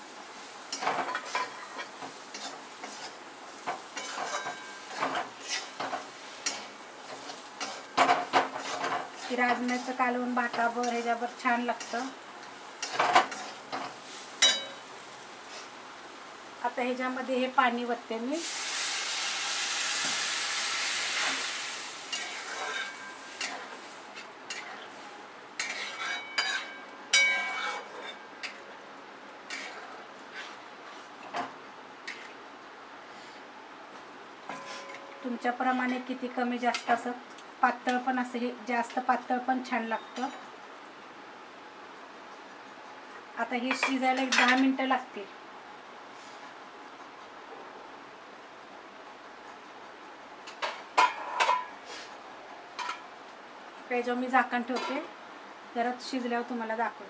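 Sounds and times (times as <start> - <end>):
water sizzling in a hot pan: 0.0 - 27.2
light sizzle: 0.0 - 57.0
metal spatula scraping a pan: 0.7 - 12.1, 22.1 - 23.7, 25.6 - 28.2, 29.5 - 31.1
spatula scraping metal pan: 4.0 - 9.9, 25.6 - 28.2.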